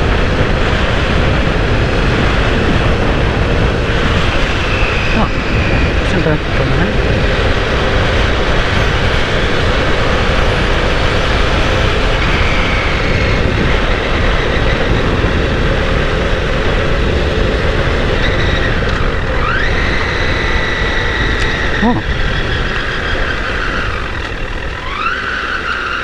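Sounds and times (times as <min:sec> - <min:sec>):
motorcycle engine: 0:00.0 - 0:26.0
wind rush on microphone: 0:00.0 - 0:26.0.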